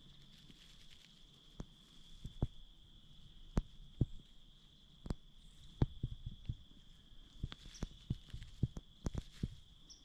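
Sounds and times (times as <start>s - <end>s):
soft thumps and clicks: 5.0s - 6.6s, 7.4s - 9.6s.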